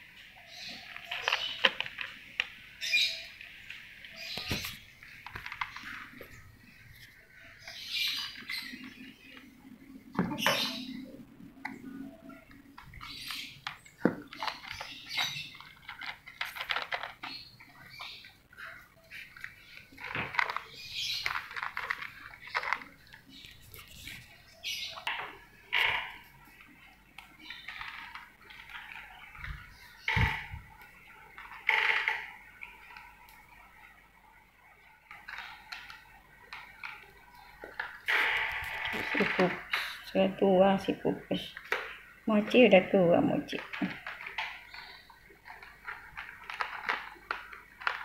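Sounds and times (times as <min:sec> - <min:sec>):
kibble rattling in plastic bowl: 0:12.8 - 0:18.2, 0:19.6 - 0:24.0, 0:43.5 - 0:48.0.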